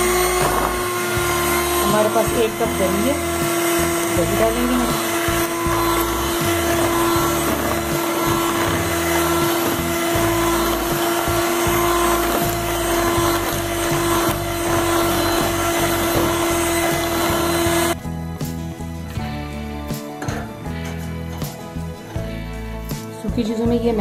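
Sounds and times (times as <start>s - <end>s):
electric hand mixer whisking batter: 0.0s - 18.0s.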